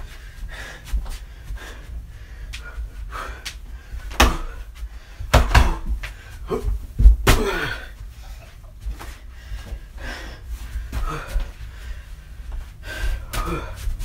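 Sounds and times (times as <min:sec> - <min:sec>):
heavy thuds and slams: 0:05.2 - 0:06.0.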